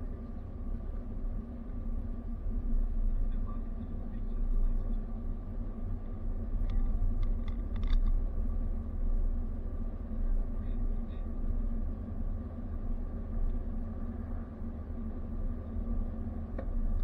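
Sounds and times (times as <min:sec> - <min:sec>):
faint steady hum: 0:00.0 - 0:17.0
road and engine rumble: 0:00.0 - 0:17.0.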